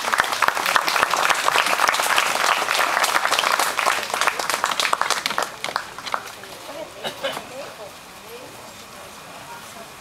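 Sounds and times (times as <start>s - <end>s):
crowd applauding: 0.0s - 6.6s.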